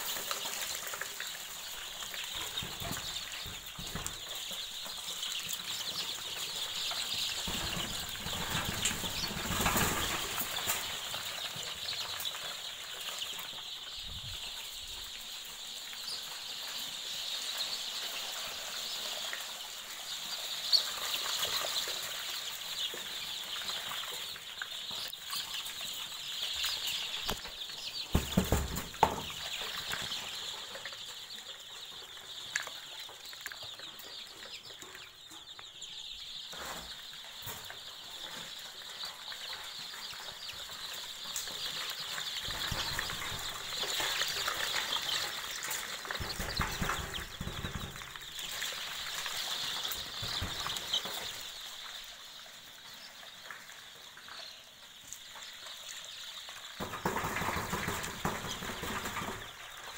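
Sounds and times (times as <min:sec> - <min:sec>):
chickens flapping wings: 0:05.4 - 0:14.4, 0:41.4 - 0:51.6, 0:56.8 - 0:59.9
scattered knocks: 0:28.1 - 0:29.4.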